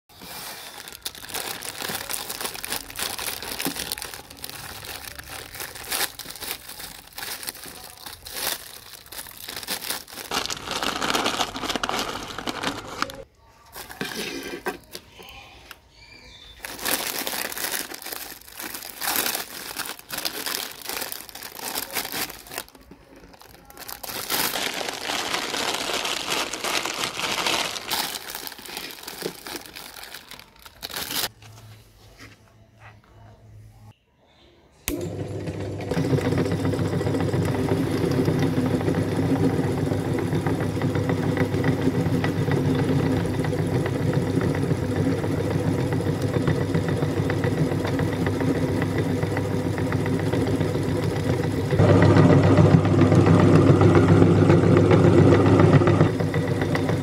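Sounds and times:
plastic packet crinkling: 0.1s - 15.1s, 16.5s - 31.5s.

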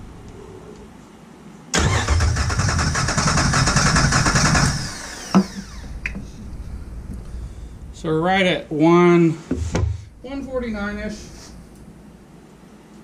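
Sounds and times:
engine cranked by starter motor: 1.8s - 6.1s.

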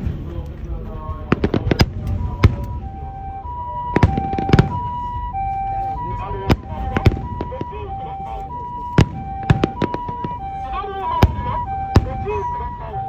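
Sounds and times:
fireworks bangs: 0.0s - 12.9s
two-tone emergency siren: 1.8s - 13.0s.

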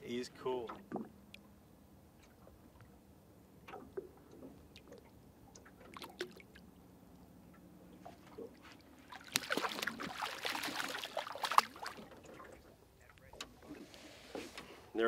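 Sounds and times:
small water splashes and drips: 3.6s - 13.8s.

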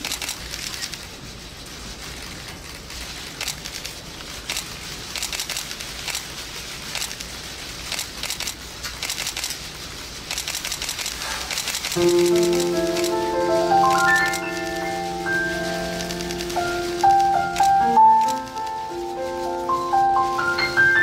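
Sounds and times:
small crackles and clicks: 0.0s - 1.1s, 2.0s - 14.7s, 16.0s - 18.7s
audience rustling: 0.0s - 21.0s.

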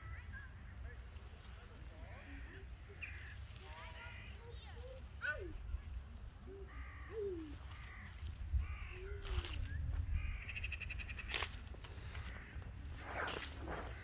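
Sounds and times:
crows cawing: 6.7s - 9.5s, 10.1s - 12.8s
wind rumble on microphone: 7.4s - 14.0s.

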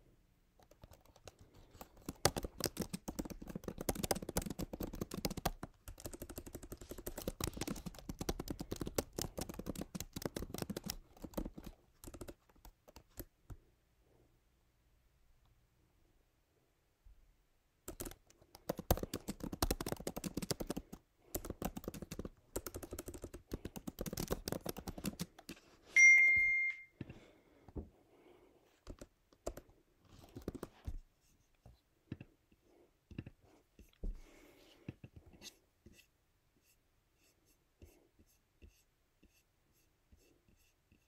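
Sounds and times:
typing on computer keyboard: 0.6s - 13.3s, 17.9s - 25.6s, 28.8s - 30.9s
short high electronic beep: 26.0s - 26.9s.

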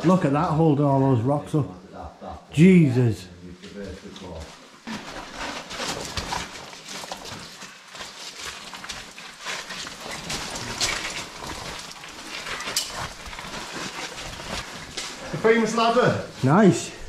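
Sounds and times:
footsteps crunching on loose rock: 4.8s - 15.7s.

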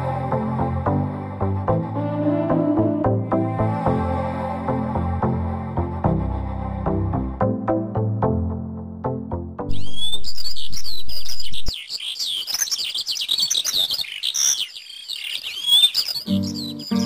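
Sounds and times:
small birds chirping: 9.7s - 17.0s.

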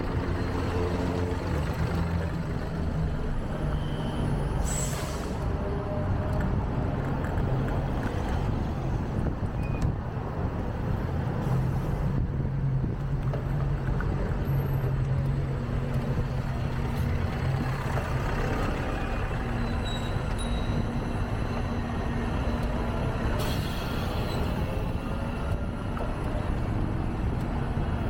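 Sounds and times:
road noise: 0.0s - 28.0s.

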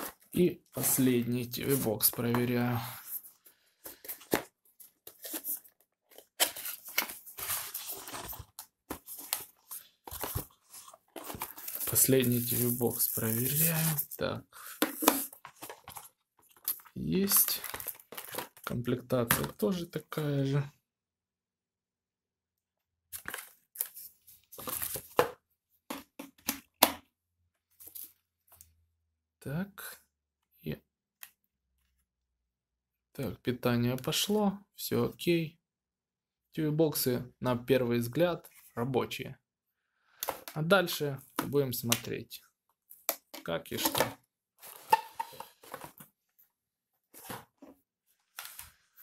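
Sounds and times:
cardboard rustling and scraping: 0.0s - 16.8s, 47.0s - 49.0s.

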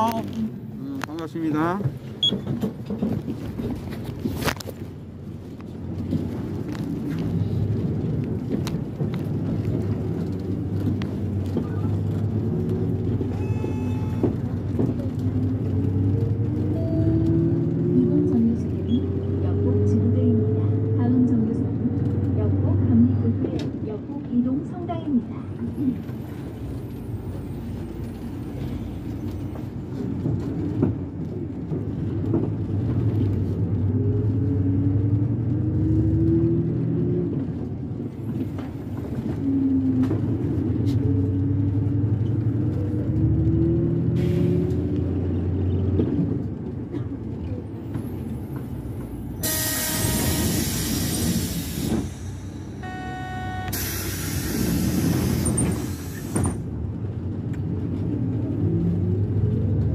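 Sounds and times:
bus engine running: 0.0s - 59.9s
air brakes hissing: 49.4s - 52.8s, 53.5s - 56.6s.

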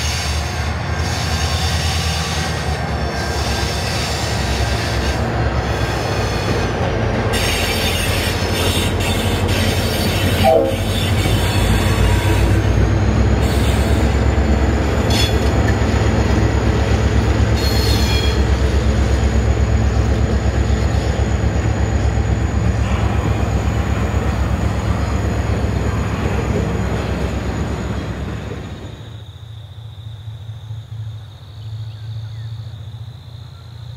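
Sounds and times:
high wheel squeal: 0.0s - 29.3s
locomotive engine rumble: 0.0s - 33.9s.

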